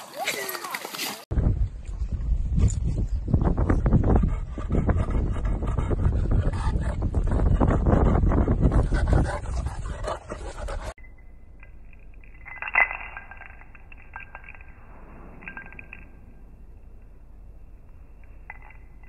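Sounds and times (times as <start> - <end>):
wind buffeting microphone: 1.3 - 11.0
clinks from wand toy: 11.0 - 16.5, 18.2 - 19.0.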